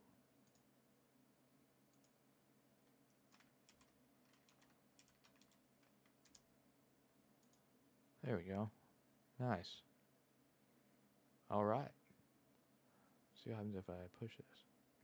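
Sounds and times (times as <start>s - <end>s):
computer keyboard and mouse clicks: 1.9s - 2.2s, 2.8s - 6.5s, 7.4s - 7.6s.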